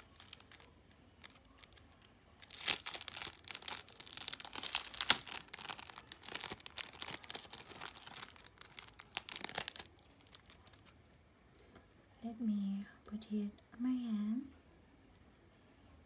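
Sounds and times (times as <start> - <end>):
plastic packet crinkling: 0.0 - 10.9.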